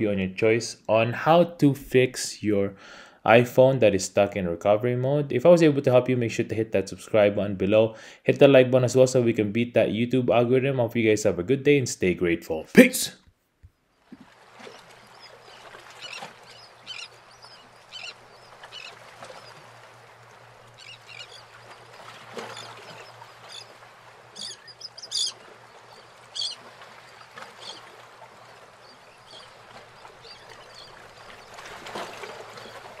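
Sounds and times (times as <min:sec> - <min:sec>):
bird chirps: 0:16.0 - 0:18.9, 0:24.4 - 0:25.4, 0:26.4 - 0:26.6.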